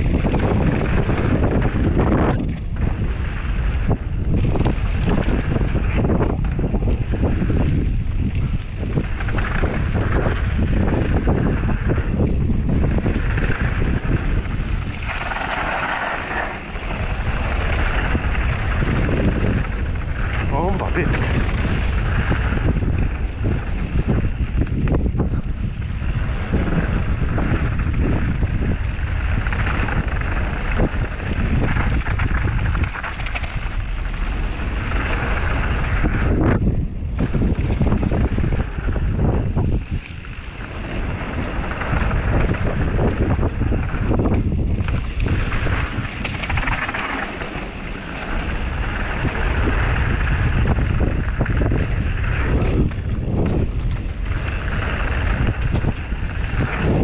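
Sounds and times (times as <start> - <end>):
bike knocking and rattling: 0.0 - 57.0
wind buffeting microphone: 0.0 - 57.0.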